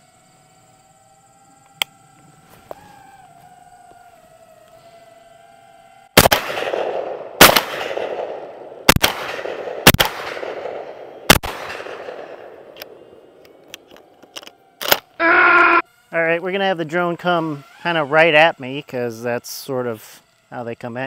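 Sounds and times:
drone motors whining: 0.0s - 6.2s, 12.1s - 21.0s
shotgun shots echoing: 6.2s - 13.4s.

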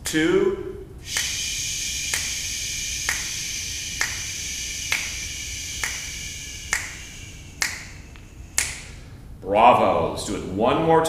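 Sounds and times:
finger snaps: 1.1s - 9.0s.

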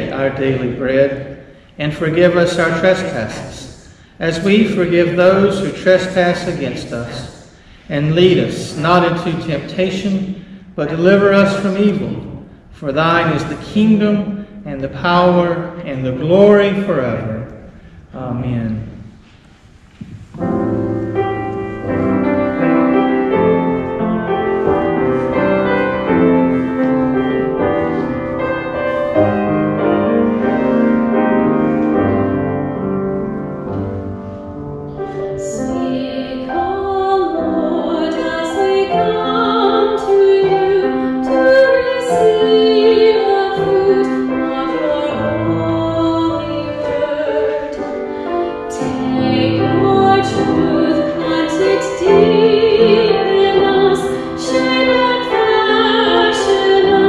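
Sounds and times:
grand piano playing: 0.0s - 19.2s, 20.2s - 57.0s
woman singing with vibrato: 35.3s - 57.0s.

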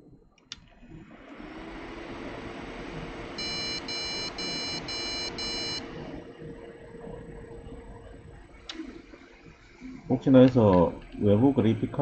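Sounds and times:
cooling fans humming: 0.0s - 12.0s
short high beeps: 3.4s - 5.9s
power-on click: 3.4s - 6.7s.

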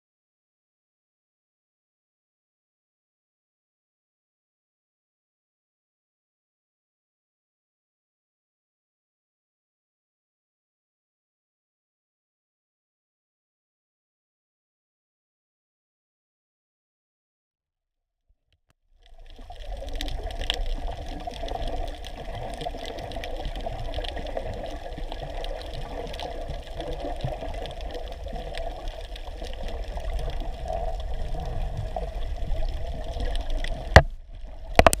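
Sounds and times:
underwater water wash: 19.0s - 35.0s.

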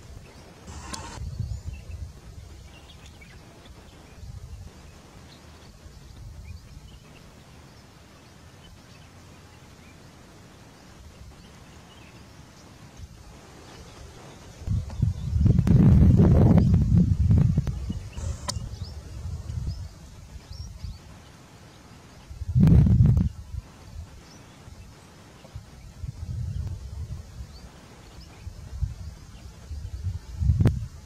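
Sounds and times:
wind buffeting microphone: 0.7s - 3.0s, 14.0s - 21.2s, 22.3s - 24.2s, 25.5s - 31.0s.

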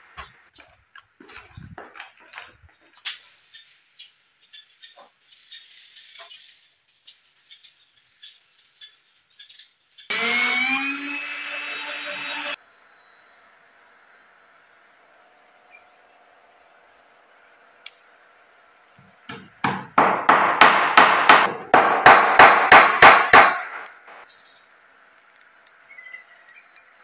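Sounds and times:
hammer blows on wood: 19.3s - 24.2s.

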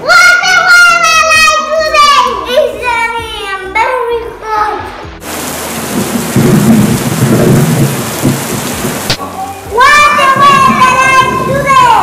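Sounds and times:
child's voice: 0.0s - 5.0s, 9.3s - 12.0s
heavy rain hiss: 4.7s - 12.0s
low rumbling thunder: 5.2s - 9.2s, 10.2s - 12.0s.

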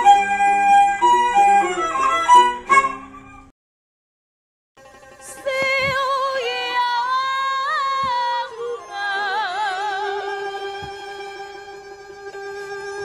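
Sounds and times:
musical accompaniment: 0.0s - 3.5s, 4.8s - 13.0s
opera singing through a pa: 5.4s - 11.8s.

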